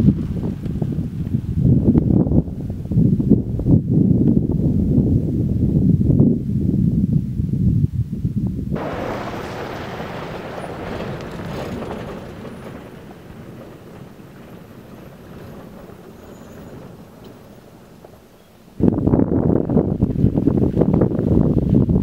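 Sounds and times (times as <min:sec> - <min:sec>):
vehicle driving on gravel: 0:00.0 - 0:02.8, 0:08.8 - 0:22.0.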